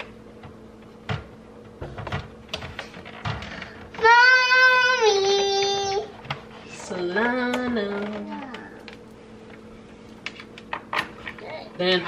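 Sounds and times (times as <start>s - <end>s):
child calling sing-song: 4.0s - 6.1s.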